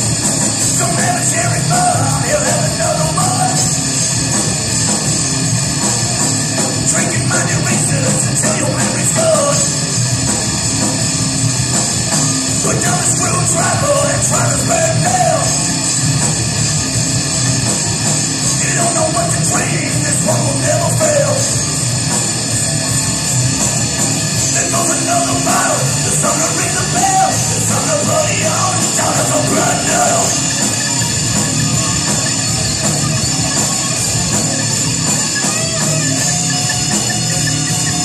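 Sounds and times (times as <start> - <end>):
rock band playing live: 0.0 - 38.0
person singing: 0.7 - 3.7, 6.8 - 9.8, 12.6 - 15.6, 18.5 - 21.6, 24.5 - 30.8.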